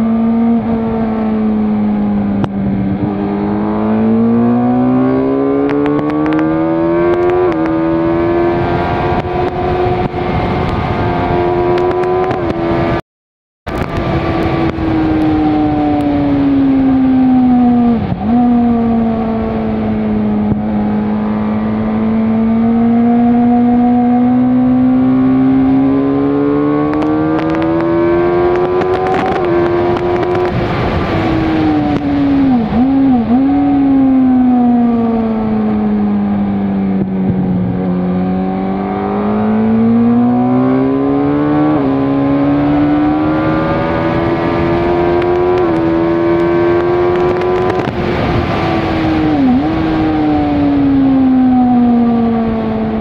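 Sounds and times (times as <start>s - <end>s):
motorcycle engine revving: 0.0s - 13.0s, 13.7s - 53.0s.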